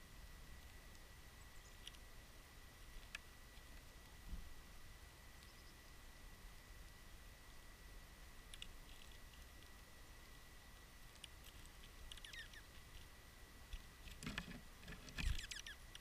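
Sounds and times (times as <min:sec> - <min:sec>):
high bird chirps: 0:12.1 - 0:12.7, 0:15.2 - 0:15.8.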